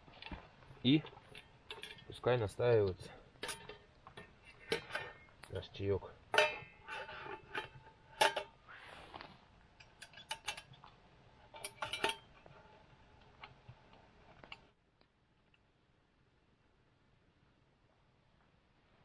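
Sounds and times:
metal pot clinking: 0:01.0 - 0:05.5, 0:06.2 - 0:08.6, 0:09.8 - 0:12.6.

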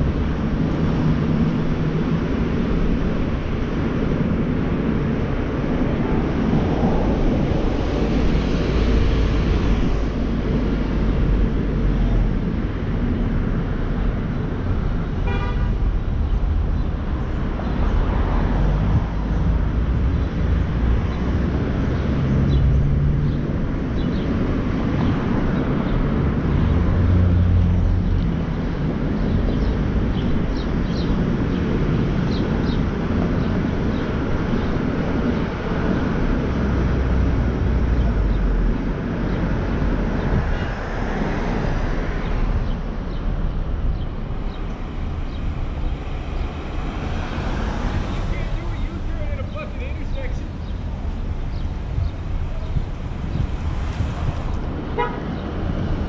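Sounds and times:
car engine and road noise: 0:00.0 - 0:56.0
car horn toot: 0:15.2 - 0:15.7, 0:55.0 - 0:55.2.

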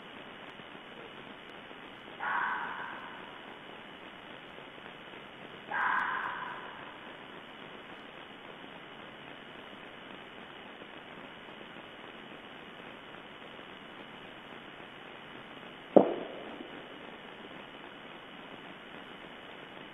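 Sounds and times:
microphone hiss: 0:00.0 - 0:19.9
gunshot with echo: 0:16.0 - 0:17.0.

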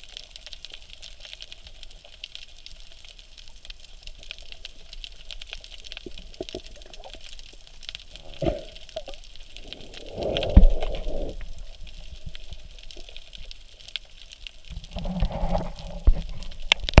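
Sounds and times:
faint clicking: 0:00.0 - 0:17.0
muffled underwater sloshing: 0:08.0 - 0:13.7.

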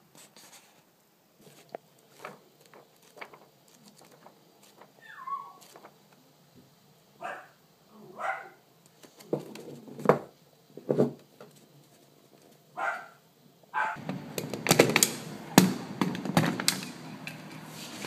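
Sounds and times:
paper rustling and clicks: 0:01.4 - 0:05.0, 0:05.6 - 0:06.0, 0:14.0 - 0:18.0
page flips: 0:01.4 - 0:06.0, 0:16.6 - 0:18.0.

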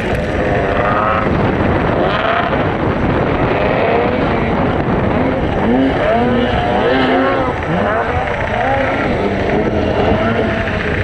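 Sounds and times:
snowmobile engines revving: 0:00.0 - 0:11.0
track and wind noise rush: 0:00.0 - 0:11.0.

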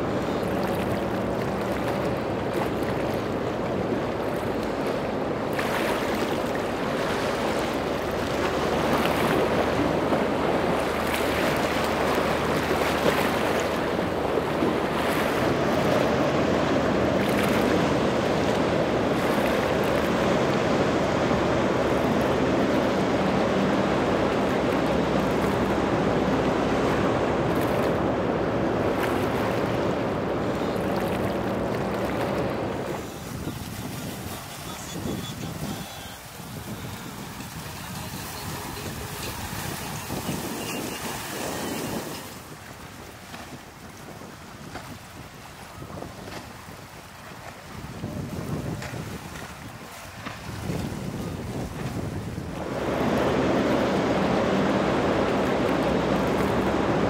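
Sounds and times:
boat engines droning: 0:00.0 - 0:57.0
surf and choppy water rushing: 0:00.0 - 0:57.0
wind on microphone: 0:00.0 - 0:57.0.

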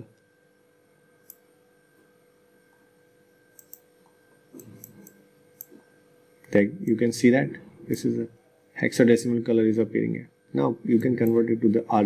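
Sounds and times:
low electrical hum: 0:00.0 - 0:12.0
faint mouse clicks: 0:03.5 - 0:05.8.

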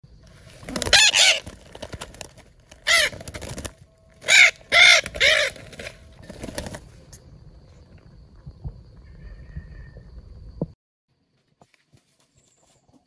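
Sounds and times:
parrots squawking: 0:00.9 - 0:01.4, 0:02.8 - 0:03.2, 0:04.2 - 0:05.9.

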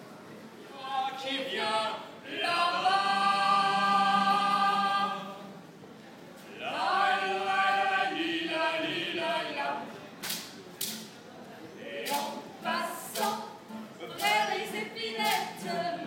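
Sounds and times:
voices singing long notes: 0:00.8 - 0:05.6, 0:06.5 - 0:09.8.

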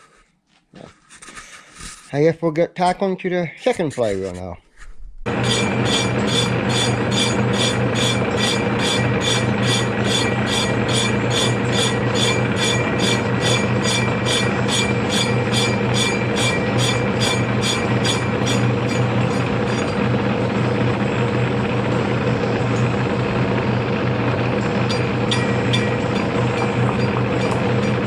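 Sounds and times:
lathe machine hum: 0:05.3 - 0:28.0.

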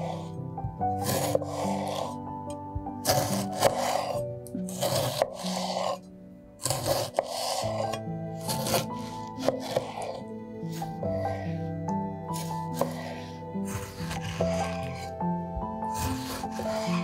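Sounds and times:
soft background music: 0:00.0 - 0:17.0
scraping rubbing strokes: 0:01.0 - 0:02.2, 0:03.1 - 0:11.7, 0:12.3 - 0:15.2, 0:15.9 - 0:17.0.

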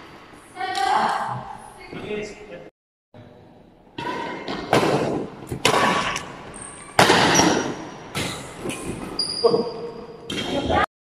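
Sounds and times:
shoe squeaking on wooden court: 0:06.4 - 0:10.7.

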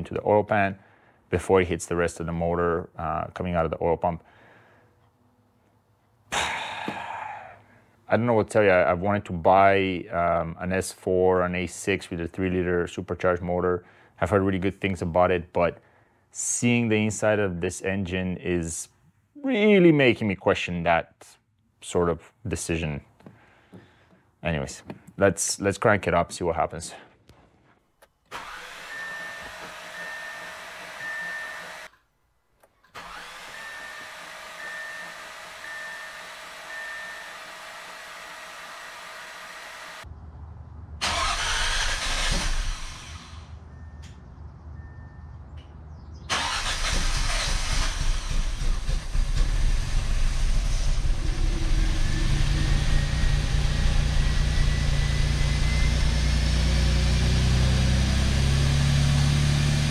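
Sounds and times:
car engine cranking and running: 0:28.3 - 0:31.9, 0:32.8 - 0:36.8, 0:41.0 - 0:44.2, 0:46.3 - 0:59.9
short electronic beeps: 0:35.7 - 0:37.3, 0:43.7 - 0:45.4.

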